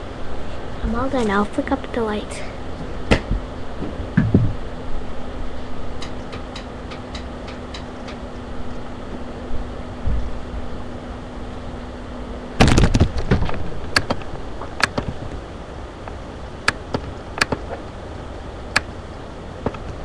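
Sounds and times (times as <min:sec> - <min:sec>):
low steady hum: 0:00.0 - 0:20.0
loud burst of knocks: 0:03.1 - 0:04.6, 0:12.6 - 0:14.2
sharp clicks: 0:16.6 - 0:17.7.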